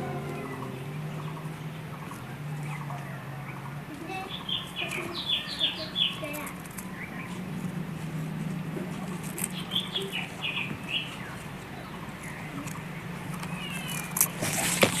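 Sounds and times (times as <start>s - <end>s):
low steady hum: 0.0s - 14.1s
nestlings chirping: 0.0s - 15.0s
faint clicks and rustles: 3.9s - 15.0s.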